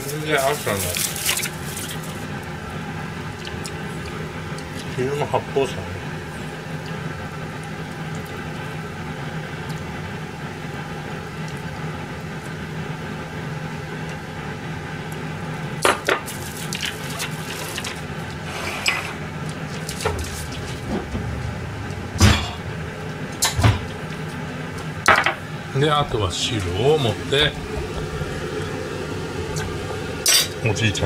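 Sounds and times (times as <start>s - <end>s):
steady background hum: 0.0s - 31.0s
dishes clinking on metal counter: 30.2s - 30.6s.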